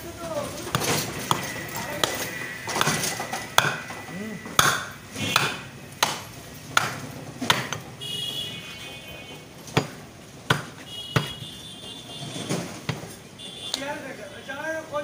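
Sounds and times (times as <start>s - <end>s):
cleaver knocking on wooden block: 3.6s - 3.8s, 4.6s - 6.2s.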